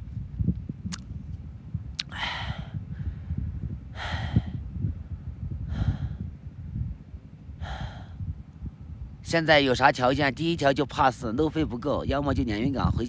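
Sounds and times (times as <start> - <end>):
wind rumble on microphone: 0.0 - 13.0
man breathing out: 2.0 - 4.7, 5.6 - 6.3, 7.6 - 8.3.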